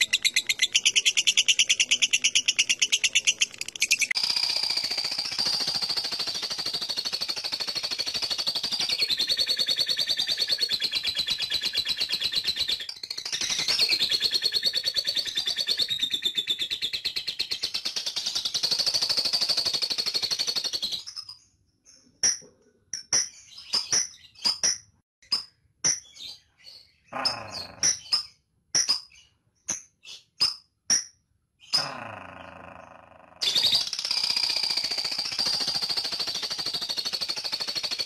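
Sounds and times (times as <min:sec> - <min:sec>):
lovebird rapid chattering rattle: 0:00.0 - 0:15.9, 0:17.0 - 0:21.1, 0:33.4 - 0:38.0
sharp bird chirps: 0:00.0 - 0:22.2, 0:33.4 - 0:38.0.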